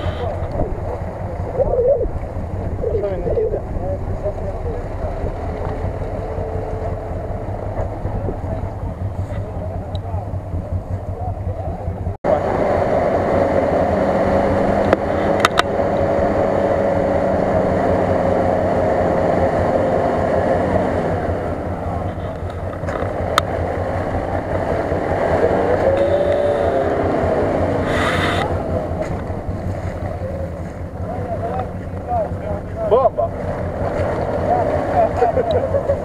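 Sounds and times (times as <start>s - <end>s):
water splashing: 0.0s - 9.6s, 22.0s - 36.0s
vehicle engine under load: 0.0s - 36.0s.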